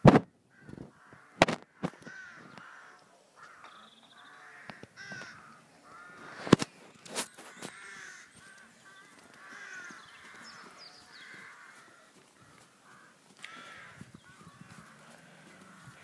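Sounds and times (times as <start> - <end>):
crows cawing: 0.5 - 16.0
high bird chirps: 6.8 - 11.4.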